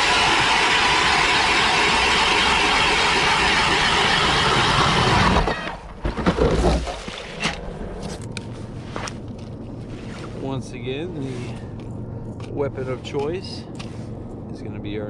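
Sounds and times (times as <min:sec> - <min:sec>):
power ice auger grinding: 0:00.0 - 0:05.8.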